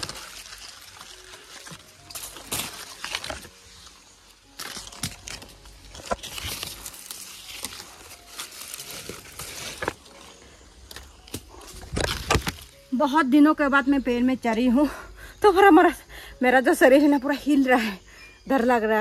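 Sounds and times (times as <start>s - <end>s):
twigs snapping: 0.0s - 12.9s
leaves and branches rustling: 0.0s - 13.1s.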